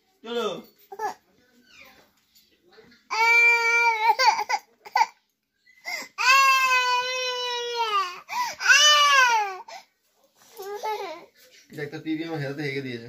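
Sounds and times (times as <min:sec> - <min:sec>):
toddler crying: 0:03.1 - 0:05.2, 0:05.9 - 0:09.8, 0:10.6 - 0:11.3.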